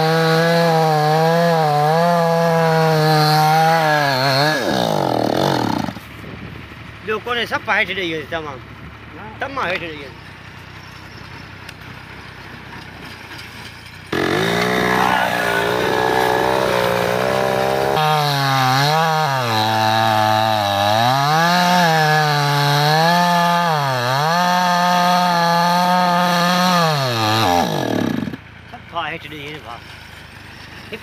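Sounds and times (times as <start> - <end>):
chainsaw cutting wood: 0.0 - 6.1, 14.1 - 28.4.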